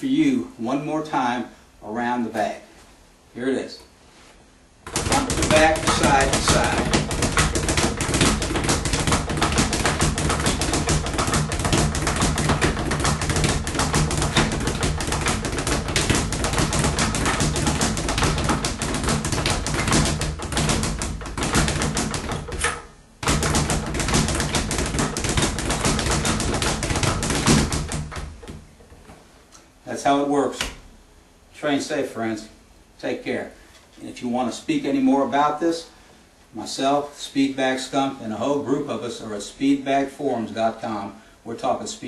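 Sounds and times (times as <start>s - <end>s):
speed bag rattling: 4.9s - 28.4s.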